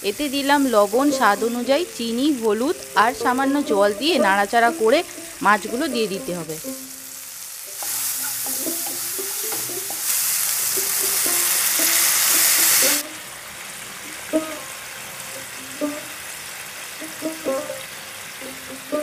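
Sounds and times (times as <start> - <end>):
food sizzling in frying pan: 0.0 - 19.0
water poured into hot pan: 6.7 - 18.7.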